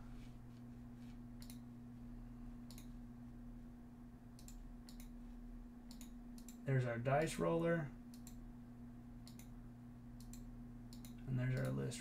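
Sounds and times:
steady low hum: 0.0s - 12.0s
faint computer mouse clicks: 1.4s - 1.6s, 2.6s - 2.9s, 4.4s - 5.2s, 5.9s - 6.6s, 9.2s - 9.5s, 10.2s - 11.8s.

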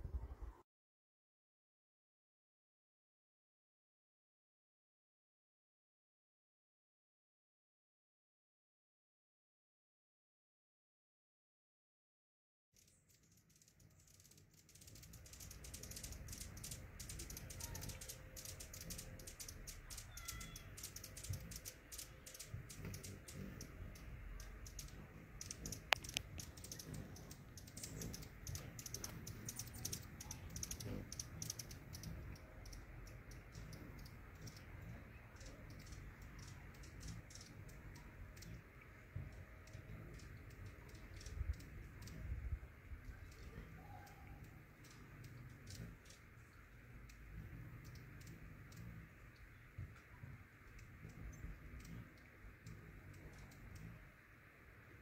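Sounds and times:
rapid high clicks and ticks: 12.8s - 38.7s, 39.3s - 42.2s, 44.4s - 54.2s
faint short chirps: 19.9s - 21.2s.

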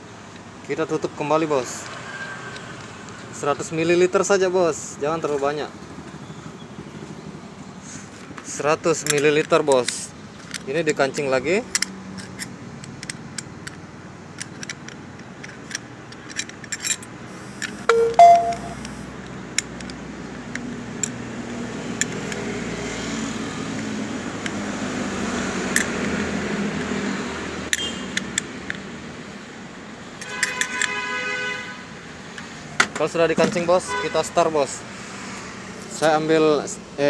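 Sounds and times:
brief multi-pitched sound: 17.9s - 18.8s.

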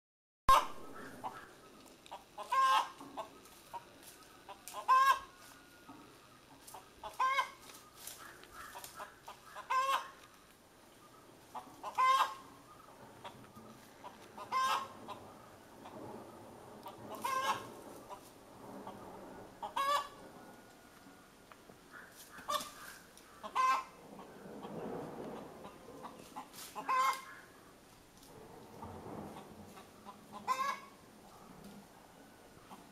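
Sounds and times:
hen cackling: 0.5s - 5.6s, 6.4s - 10.2s, 11.5s - 16.0s, 16.8s - 19.0s, 19.6s - 20.2s, 21.8s - 24.7s, 25.4s - 27.6s, 29.4s - 31.0s.

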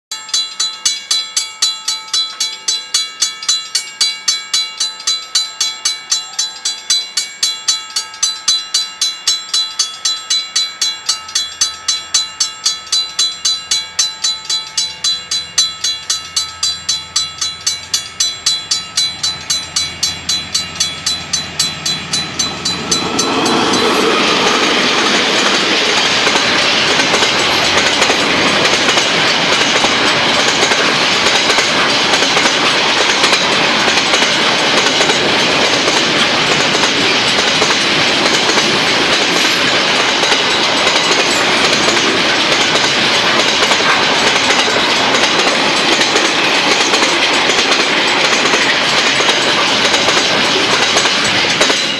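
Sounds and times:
level-crossing bell ringing: 0.1s - 51.9s
freight train rumbling and clattering: 16.6s - 51.9s.

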